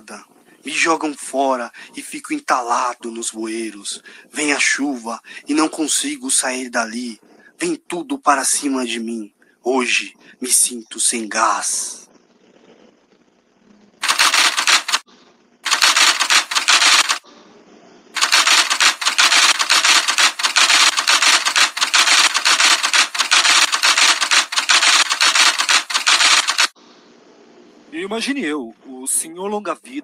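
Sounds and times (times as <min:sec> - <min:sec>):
typewriter key clacks: 0:14.0 - 0:15.0, 0:15.7 - 0:17.2, 0:18.2 - 0:26.7.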